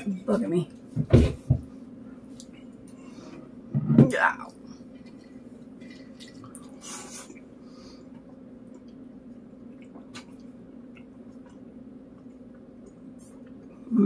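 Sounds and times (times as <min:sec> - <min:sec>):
steady low hum: 0:00.0 - 0:14.0
faint chewing: 0:04.5 - 0:13.9.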